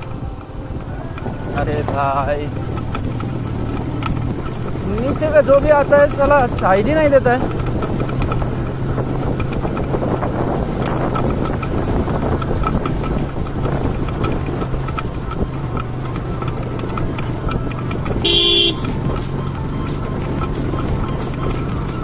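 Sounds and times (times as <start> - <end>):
motorcycle engine running: 0.0 - 22.0
vehicle horn honk: 18.2 - 19.0.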